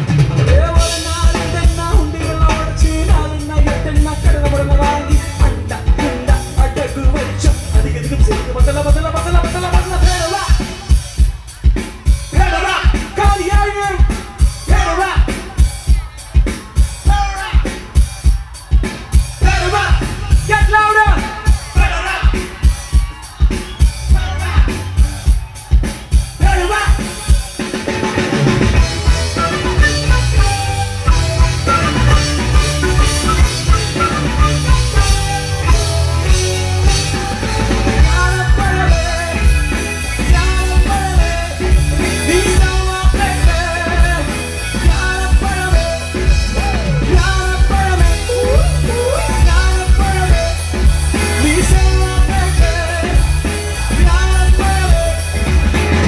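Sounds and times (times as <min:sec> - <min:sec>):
live band playing: 0:00.0 - 0:56.0
person singing: 0:00.4 - 0:11.2, 0:28.8 - 0:55.6.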